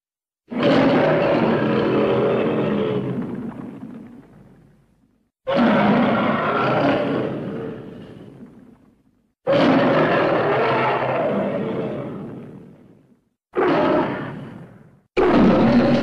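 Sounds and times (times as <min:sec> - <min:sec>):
monster roar: 0:00.5 - 0:03.4, 0:05.5 - 0:08.4, 0:09.5 - 0:12.3, 0:13.6 - 0:14.6, 0:15.2 - 0:16.0.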